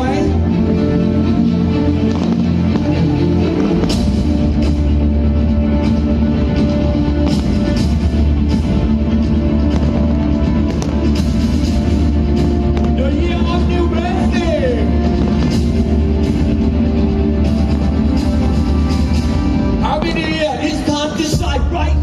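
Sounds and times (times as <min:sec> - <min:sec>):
loud rock music: 0:00.0 - 0:22.0.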